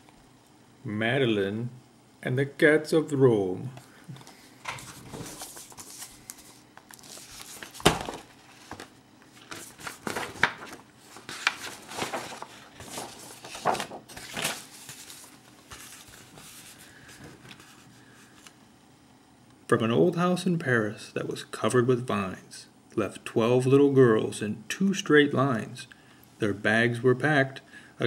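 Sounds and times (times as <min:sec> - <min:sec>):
book pages flipping: 0:04.1 - 0:18.6.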